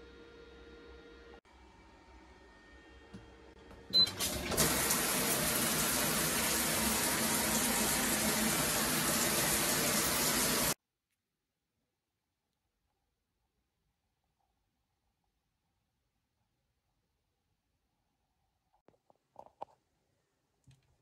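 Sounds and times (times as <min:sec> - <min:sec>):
shower spray hissing on tiles: 0:04.6 - 0:10.8.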